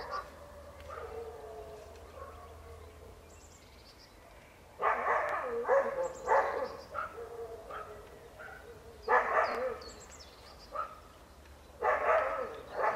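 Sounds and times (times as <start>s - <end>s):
dog barking: 0.0s - 2.6s, 4.8s - 10.0s, 10.7s - 11.1s, 11.8s - 12.9s.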